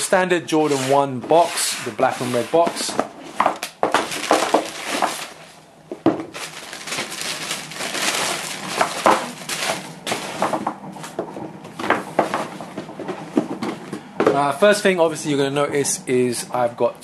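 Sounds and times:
tissue paper rustling: 0:03.4 - 0:05.6, 0:06.3 - 0:10.6.

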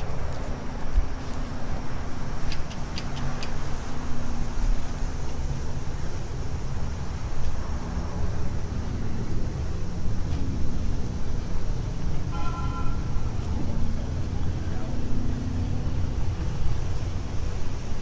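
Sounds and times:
sharp clicks: 0:02.4 - 0:03.8.

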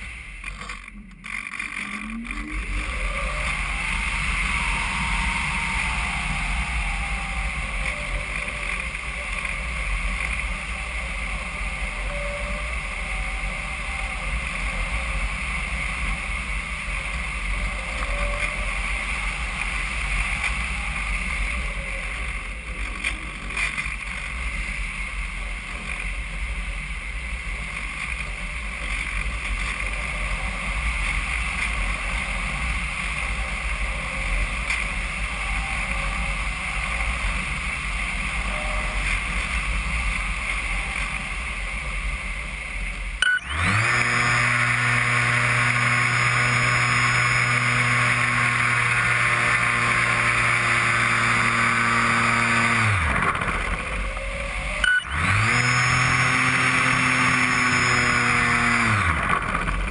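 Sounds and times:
model airplane motor and propeller: 0:00.0 - 0:59.9
wind on microphone: 0:01.2 - 0:25.8.

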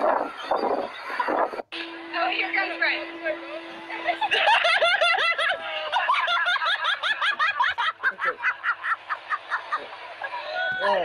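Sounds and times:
high-pitched cackling laughter: 0:04.2 - 0:10.9.

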